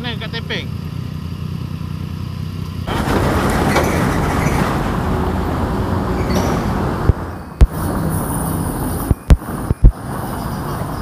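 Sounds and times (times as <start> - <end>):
motorcycle engine idling: 0.0 - 2.9
steady rushing noise: 4.3 - 10.2.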